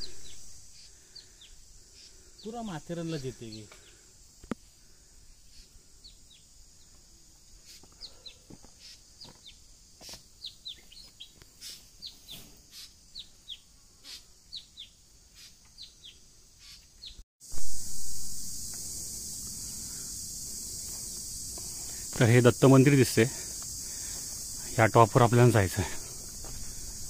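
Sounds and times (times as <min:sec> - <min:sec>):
small birds chirping: 0:00.0 - 0:04.6, 0:05.4 - 0:17.2
high-pitched insect drone: 0:00.0 - 0:27.0.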